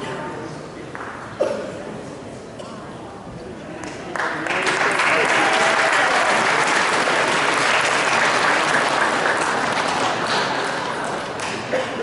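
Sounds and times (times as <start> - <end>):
spectators applauding: 4.1 - 11.7.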